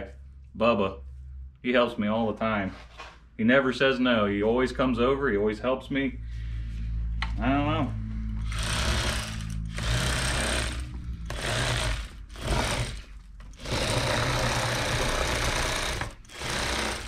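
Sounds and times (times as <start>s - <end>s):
electric fillet knife sawing fish: 8.4s - 17.0s.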